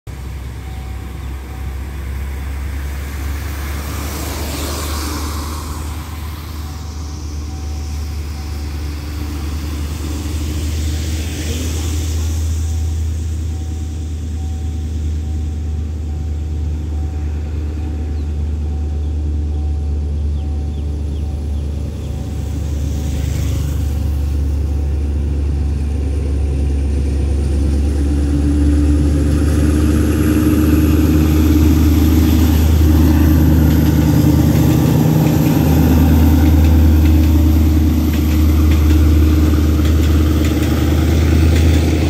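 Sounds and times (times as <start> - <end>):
car tyres hissing on wet road: 2.0 - 14.3, 22.4 - 24.7.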